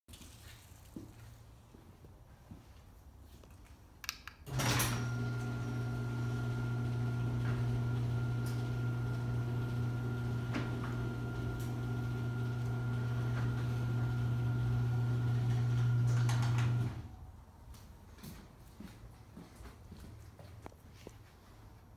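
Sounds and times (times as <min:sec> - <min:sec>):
garage door motor hum: 0:04.4 - 0:17.2.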